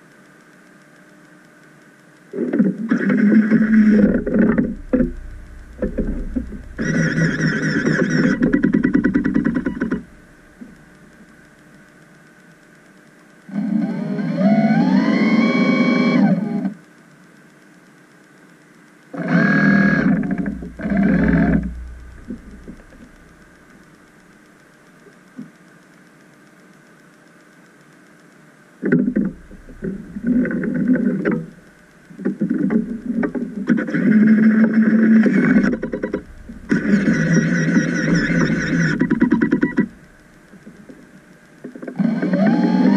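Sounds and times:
electric thrusters whining: 3.0 - 11.4, 19.2 - 24.1, 29.0 - 31.7, 33.9 - 40.5.

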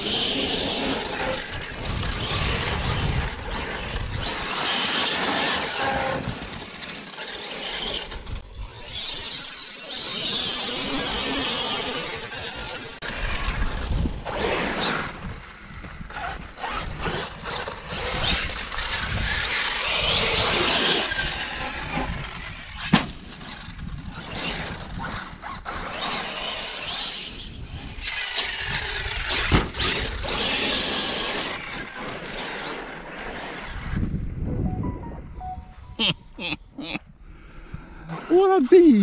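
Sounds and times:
electric motor whining: 0.0 - 15.2
tyres on sand and gravel: 0.0 - 34.3.

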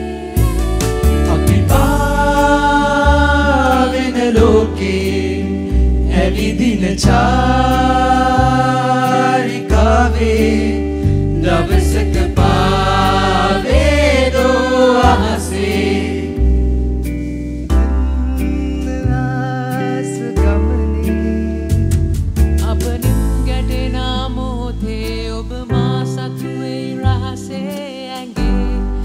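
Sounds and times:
group singing: 0.0 - 16.5
acoustic guitar: 0.0 - 29.0
keyboard: 0.0 - 29.0.

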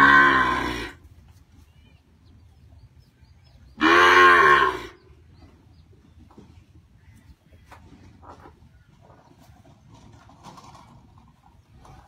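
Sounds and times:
cow mooing: 0.0 - 1.0, 3.8 - 5.0.

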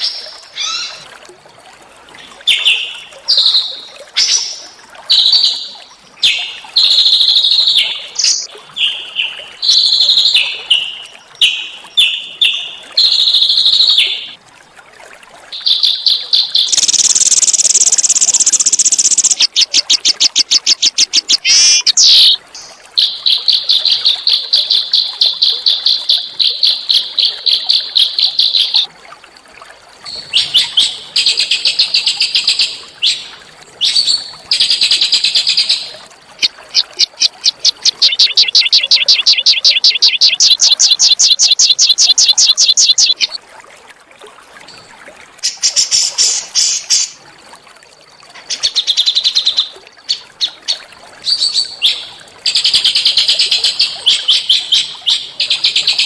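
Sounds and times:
songbird singing: 7.1 - 14.4, 15.6 - 28.9, 33.0 - 43.4
bird fast trill: 16.6 - 22.4, 36.4 - 43.4.

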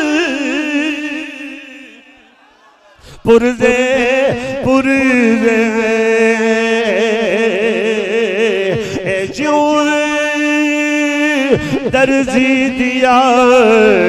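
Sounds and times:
man singing unaccompanied: 0.0 - 2.1, 3.2 - 14.0.

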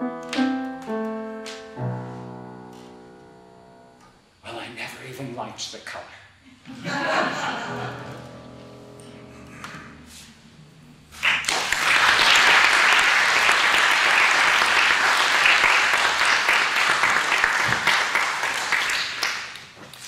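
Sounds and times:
grand piano chord ringing: 0.0 - 4.5, 7.4 - 11.1
audience applause: 11.2 - 20.0.

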